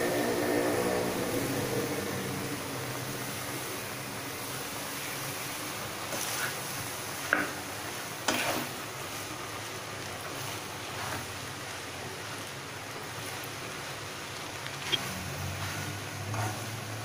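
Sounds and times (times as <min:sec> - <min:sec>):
steady hiss: 0:00.0 - 0:17.0
spatula scraping in pan: 0:06.0 - 0:12.4, 0:14.7 - 0:17.0.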